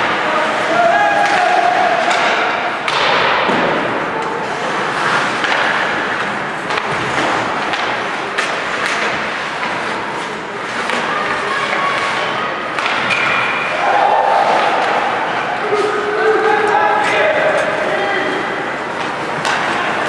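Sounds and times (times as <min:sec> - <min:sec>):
arena crowd din: 0:00.0 - 0:20.0
hockey sticks and bodies hitting boards: 0:00.0 - 0:20.0.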